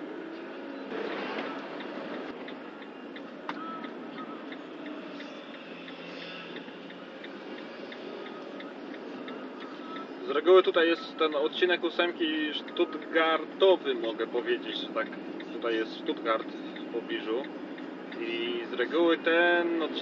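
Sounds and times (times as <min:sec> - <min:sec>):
engine and road noise: 0:00.0 - 0:20.0
turn signal ticking: 0:00.0 - 0:20.0.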